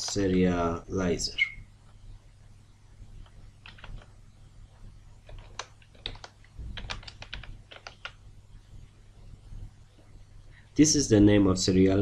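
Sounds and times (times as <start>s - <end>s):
keyboard typing clicks: 3.2s - 4.1s, 5.2s - 8.2s.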